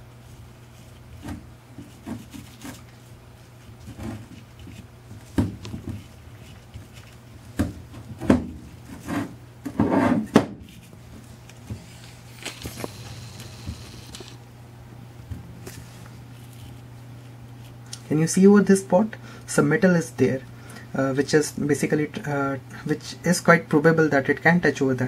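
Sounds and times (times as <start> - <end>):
steady low hum: 0.0 - 25.0
knocks and scrapes on wooden table: 9.0 - 10.5.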